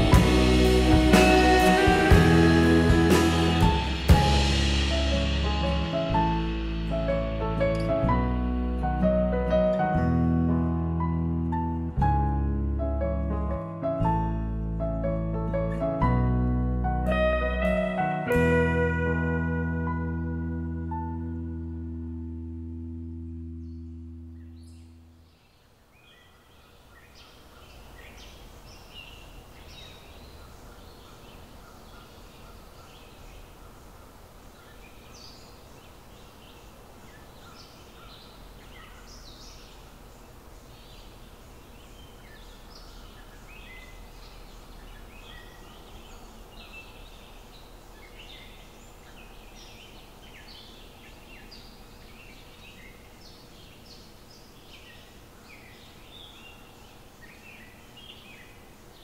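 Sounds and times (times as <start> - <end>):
steady low rumble: 0.0 - 13.6
small birds chirping: 23.4 - 59.0.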